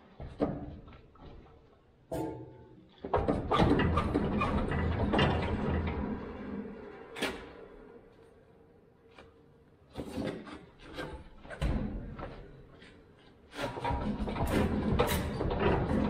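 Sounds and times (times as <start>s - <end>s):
metal clunks and clanks: 13.6s - 16.0s.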